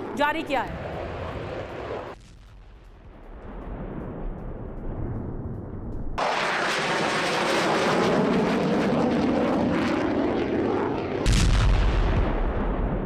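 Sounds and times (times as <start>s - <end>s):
aircraft engine rushing: 0.0s - 2.2s, 2.8s - 11.5s
deep explosion boom: 2.1s - 6.8s, 11.2s - 13.0s.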